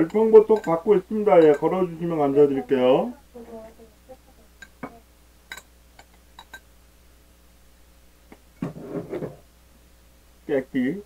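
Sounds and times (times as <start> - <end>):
spoon clicking in ceramic bowl: 0.0 - 0.8, 1.4 - 1.7, 5.5 - 6.7
faint room hum: 0.0 - 11.0.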